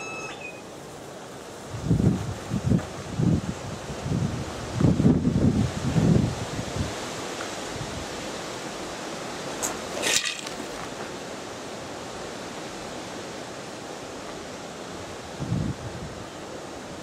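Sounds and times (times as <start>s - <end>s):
dry rustle: 0.7s - 7.8s, 8.4s - 13.2s
wind noise on microphone: 1.6s - 8.6s, 14.9s - 17.0s.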